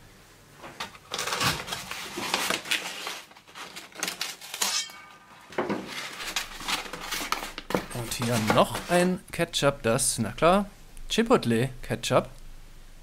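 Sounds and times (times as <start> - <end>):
cardboard tube and paper rustling: 1.1 - 4.8, 5.5 - 9.2.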